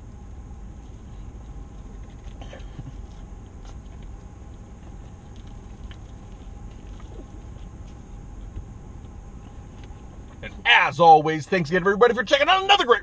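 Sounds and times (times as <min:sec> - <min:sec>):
steady low hum: 0:00.0 - 0:13.0
man chewing food: 0:01.3 - 0:10.4.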